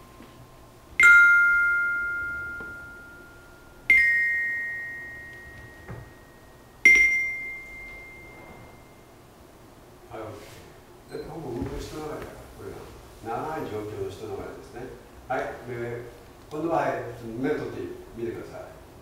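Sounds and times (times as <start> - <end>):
metallophone bars struck with mallet: 1.0 - 8.3.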